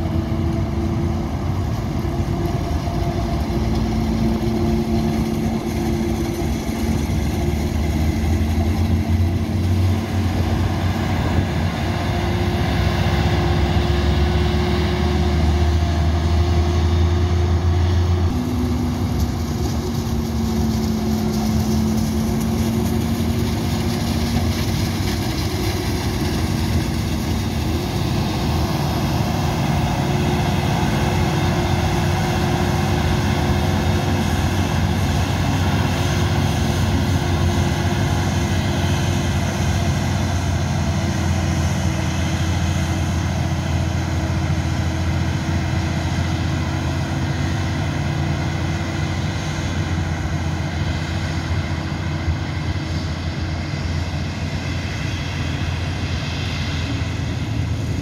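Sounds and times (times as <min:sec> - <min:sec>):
heavy engine drone: 0:00.0 - 0:58.0
higher engine tone: 0:00.0 - 0:58.0.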